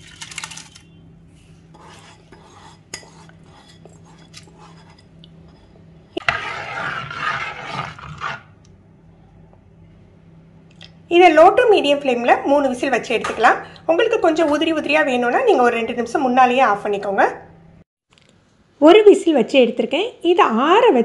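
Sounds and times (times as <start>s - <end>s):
metal spoon scraping pot: 1.7s - 8.6s.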